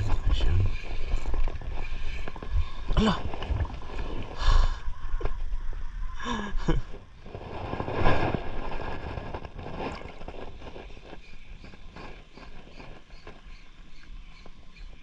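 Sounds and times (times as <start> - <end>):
lapping water: 0.0 - 5.3
wind on microphone: 0.0 - 15.0.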